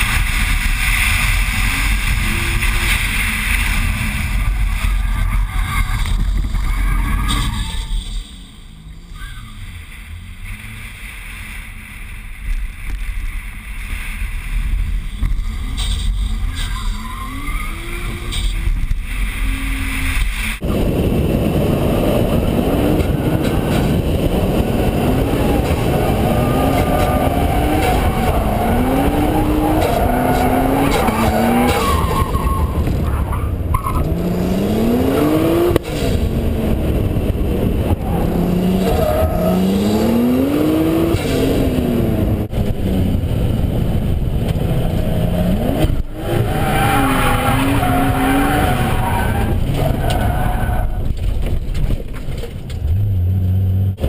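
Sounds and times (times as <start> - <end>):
car engine revving: 15.4 - 51.4
wind noise on microphone: 18.1 - 46.5.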